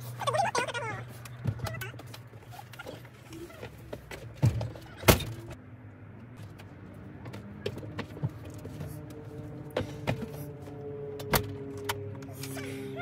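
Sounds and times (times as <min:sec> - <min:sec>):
knocks and thumps in trailer: 0:03.5 - 0:05.6.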